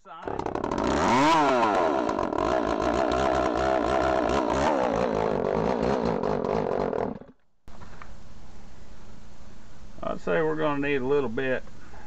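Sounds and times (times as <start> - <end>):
chainsaw engine running: 0.2 - 7.4.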